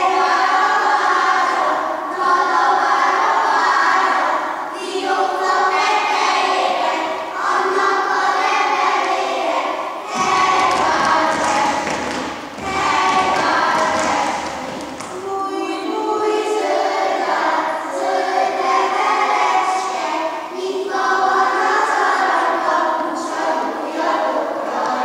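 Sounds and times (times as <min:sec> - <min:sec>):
group singing: 0:00.0 - 0:25.0
dancing feet thudding on floor: 0:10.1 - 0:15.2.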